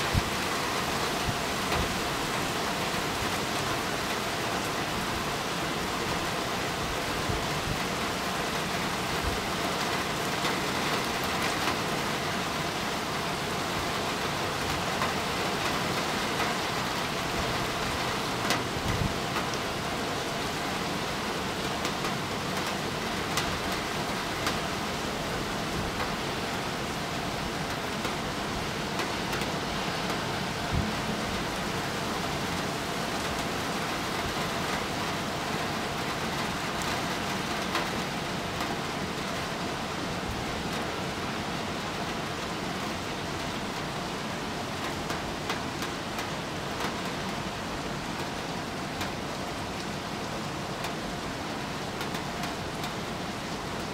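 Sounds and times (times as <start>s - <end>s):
steady rain: 0.0s - 53.9s.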